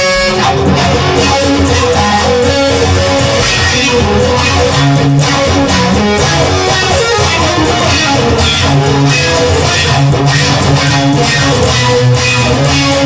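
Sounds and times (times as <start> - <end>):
electric guitar: 0.0 - 13.0
low bass notes: 0.0 - 13.0.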